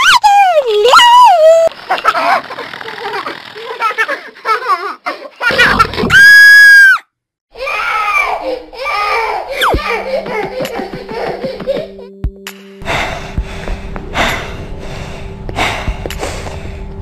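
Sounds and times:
shrill scream: 0:06.1 - 0:08.3
cartoon girl giggling: 0:08.4 - 0:12.2
cartoon footsteps pattering: 0:09.7 - 0:12.0.

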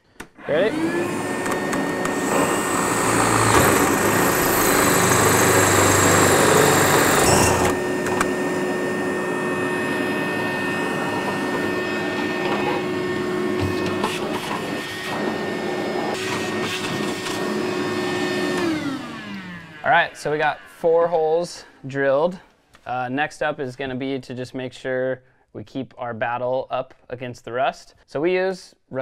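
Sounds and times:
vacuum running: 0:00.3 - 0:21.7
hole saw cutting sheet metal: 0:00.4 - 0:21.1.

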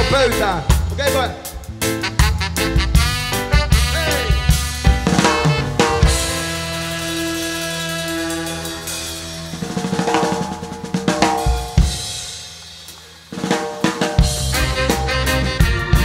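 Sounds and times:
reggae band playing: 0:00.0 - 0:16.0
snare and cymbal roll: 0:04.8 - 0:16.0.

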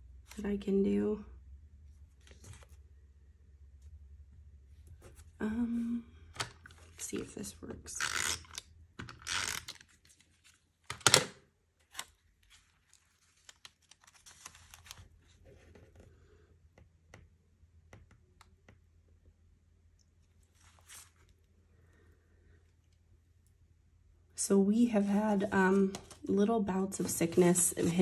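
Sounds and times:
paper rustling and crinkling: 0:02.1 - 0:02.8, 0:11.8 - 0:16.0, 0:20.4 - 0:21.4, 0:25.0 - 0:28.0.

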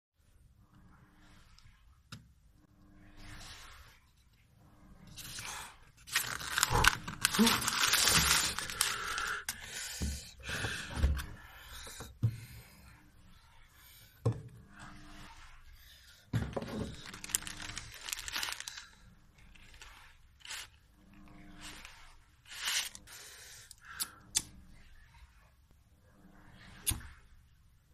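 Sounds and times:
paper tearing and crumpling: 0:05.2 - 0:09.5, 0:16.8 - 0:20.8, 0:21.6 - 0:23.0
paper packet rustling: 0:06.0 - 0:09.5, 0:16.6 - 0:20.8.

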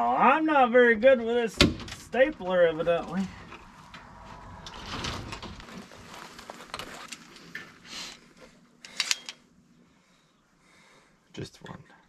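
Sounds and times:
rustling and scraping of wire: 0:03.0 - 0:09.4.

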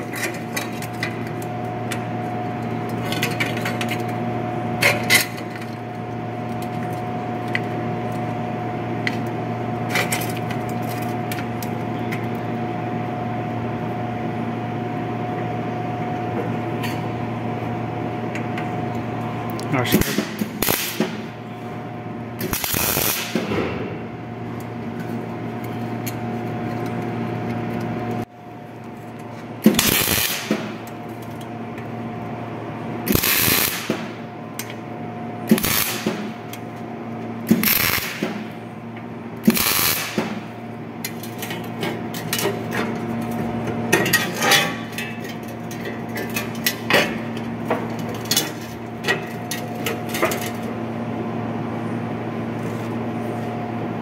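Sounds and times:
steady electrical hum: 0:00.0 - 0:54.0
sharp welding clicks: 0:19.9 - 0:21.3, 0:22.4 - 0:23.6, 0:29.6 - 0:31.0, 0:33.1 - 0:34.8, 0:35.5 - 0:36.7, 0:37.5 - 0:38.5, 0:39.4 - 0:41.6
welder crackling bursts: 0:19.9 - 0:21.3, 0:22.4 - 0:23.6, 0:29.6 - 0:30.8, 0:33.0 - 0:34.1, 0:35.5 - 0:36.5, 0:37.5 - 0:38.5, 0:39.4 - 0:40.5.

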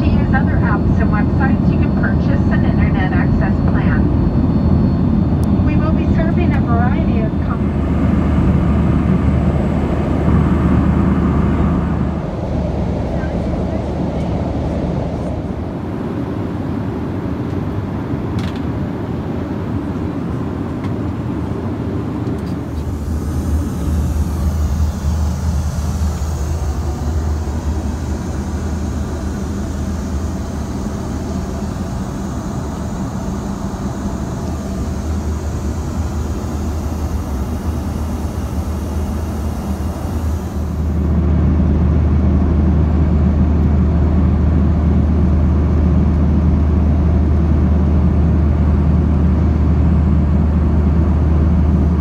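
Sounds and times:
jet engines droning: 0:00.0 - 0:52.0
rushing air: 0:07.6 - 0:19.8, 0:21.0 - 0:43.0.

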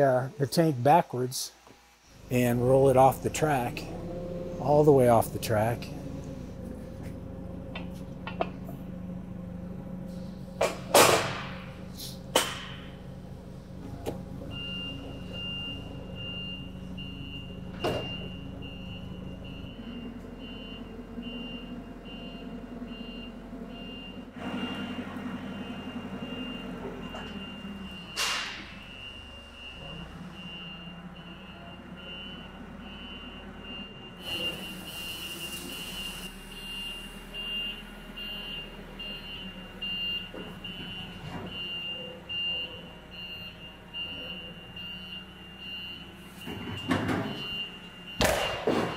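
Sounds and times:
forklift engine running: 0:01.6 - 0:48.9
reversing alarm beeping: 0:14.5 - 0:48.9.

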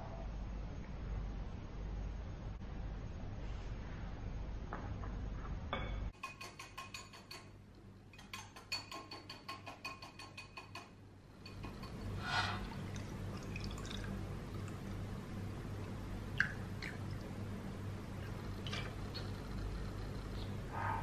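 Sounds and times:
milk pouring over ice: 0:12.7 - 0:15.0.

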